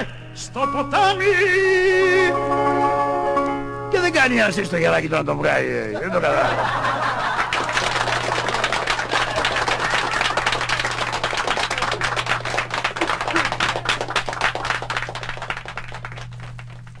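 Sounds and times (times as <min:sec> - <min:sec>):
low steady hum: 0:00.0 - 0:17.0
audience applause: 0:06.4 - 0:17.0.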